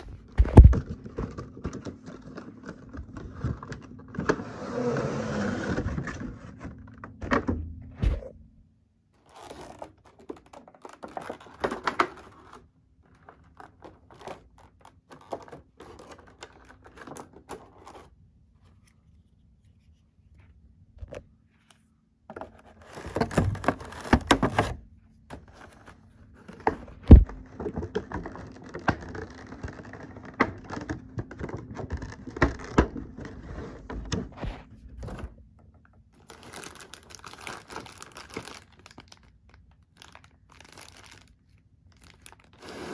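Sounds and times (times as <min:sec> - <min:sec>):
plastic packaging rustling: 0:00.0 - 0:04.3, 0:09.2 - 0:18.9, 0:22.3 - 0:33.9, 0:36.2 - 0:42.9.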